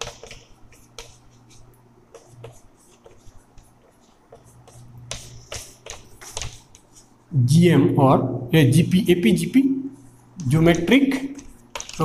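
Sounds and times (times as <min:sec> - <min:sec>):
chalk writing on chalkboard: 0:00.0 - 0:07.2.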